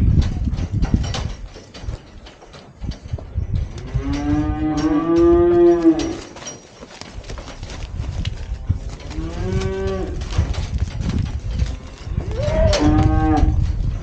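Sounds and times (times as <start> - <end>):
cow mooing: 12.3 - 13.6.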